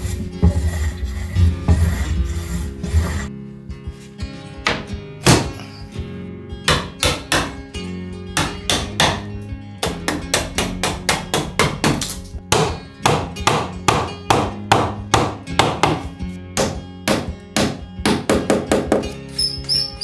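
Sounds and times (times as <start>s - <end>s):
soft background guitar music: 0.0s - 20.0s
hammer striking chisel: 6.7s - 7.6s, 8.4s - 19.9s.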